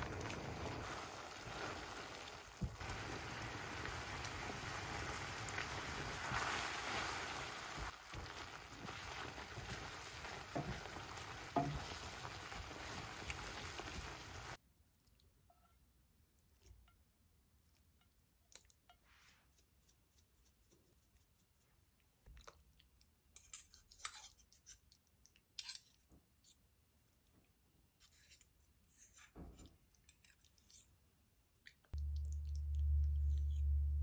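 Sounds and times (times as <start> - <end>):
food sizzling in a pan: 0.0 - 14.6.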